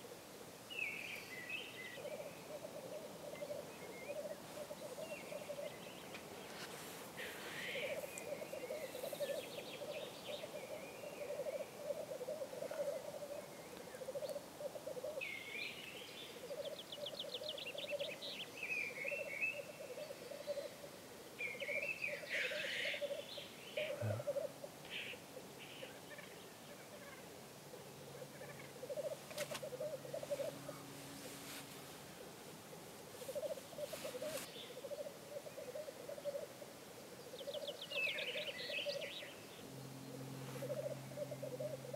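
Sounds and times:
grouse hissing calls: 2.0 - 5.8, 6.5 - 13.4, 19.2 - 39.1, 40.2 - 41.9
grouse bubbling cooing song: 7.6 - 15.2, 23.8 - 24.7, 33.2 - 36.7.

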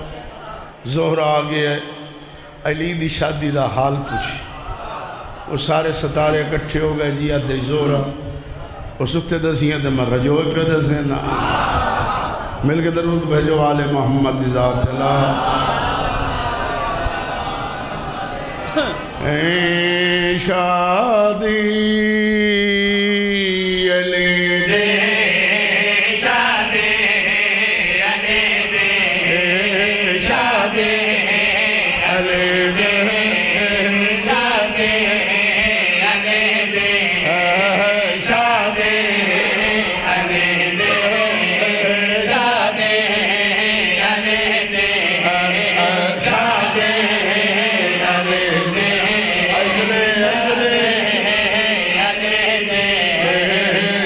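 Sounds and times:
men chanting through microphones: 18.7 - 54.0.

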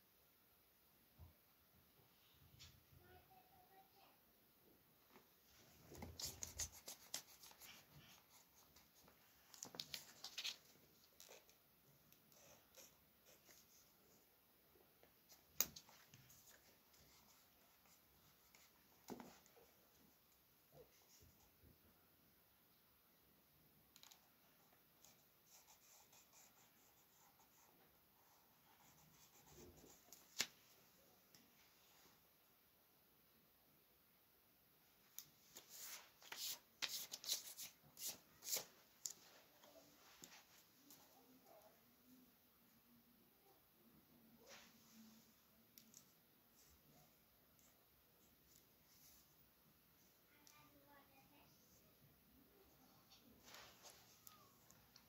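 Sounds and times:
pencil scratching on paper: 6.0 - 9.2, 25.0 - 30.1.

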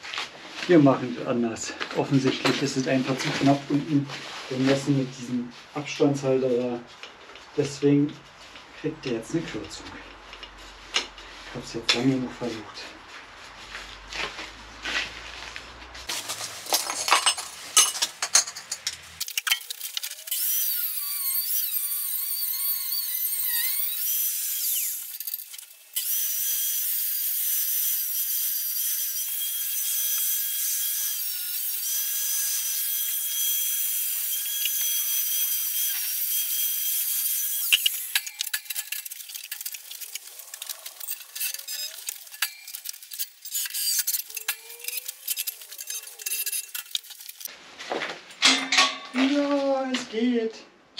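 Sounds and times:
power tool cutting metal: 19.2 - 47.5.

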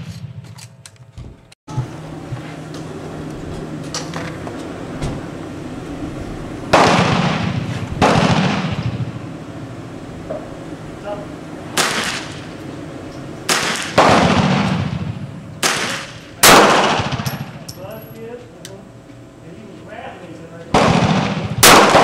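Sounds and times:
pistol shots echoing: 6.8 - 9.1, 11.8 - 12.5, 13.5 - 17.6, 20.8 - 22.0.

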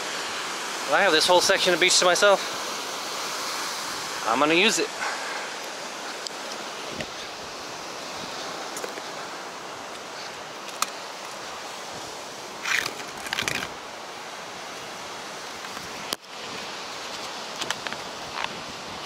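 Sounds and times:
surf breaking on beach: 0.0 - 10.3.

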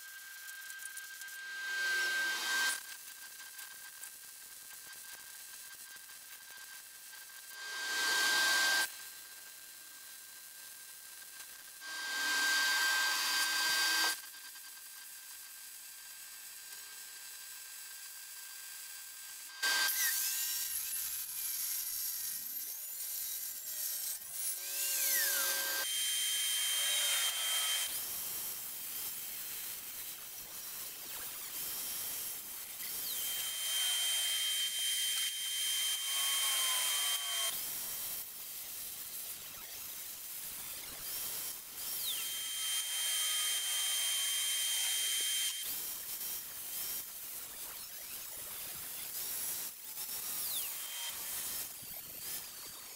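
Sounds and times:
angle grinder cutting steel: 0.1 - 2.8, 7.5 - 8.9, 11.8 - 14.2, 19.5 - 52.9
crackling wire-feed welding: 19.6 - 43.0.

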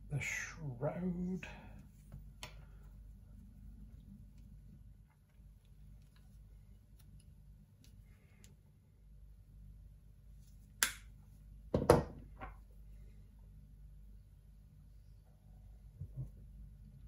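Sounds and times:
tools knocking on wooden worktop: 11.8 - 12.6.

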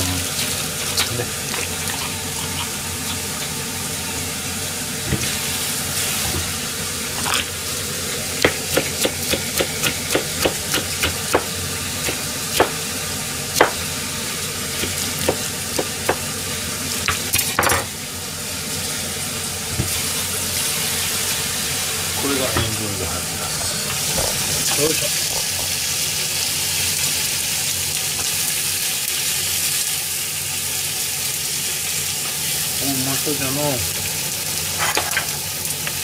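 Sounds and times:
pork sizzling in a pan: 0.0 - 36.0
knife chopping on plastic board: 8.4 - 12.8, 13.6 - 13.8, 14.8 - 16.2.

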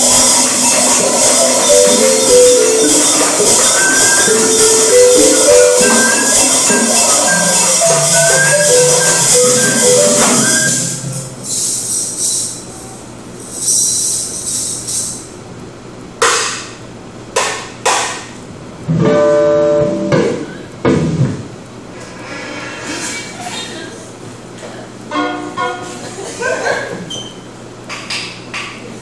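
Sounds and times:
ensemble melody: 0.0 - 11.5, 18.9 - 20.4
held pitched note: 0.0 - 12.0, 18.9 - 20.6
short percussive hits: 0.0 - 12.6
rattling hand percussion: 0.0 - 12.7, 13.4 - 15.3.

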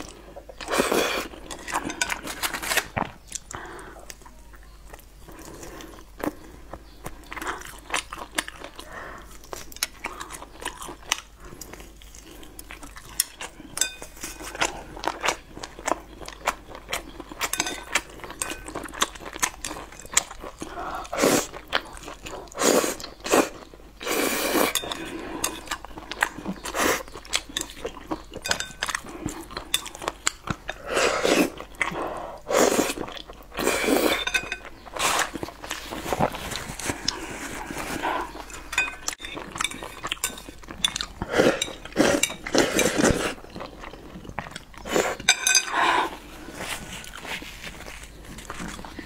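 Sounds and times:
chewing: 0.0 - 49.0
chopsticks clinking on ceramic bowl: 13.8 - 14.6, 17.4 - 20.2, 24.7 - 25.8, 27.5 - 30.4, 34.1 - 34.8, 38.3 - 43.1, 44.6 - 45.8.

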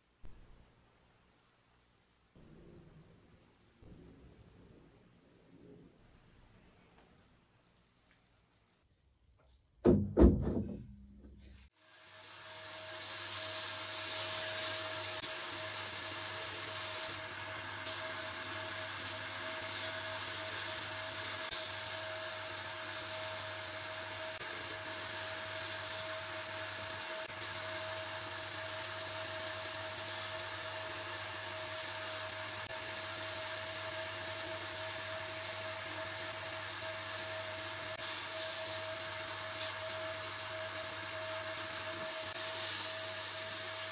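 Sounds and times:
loud knocks: 9.8 - 11.4
sandblasting gun hissing: 11.8 - 43.9.

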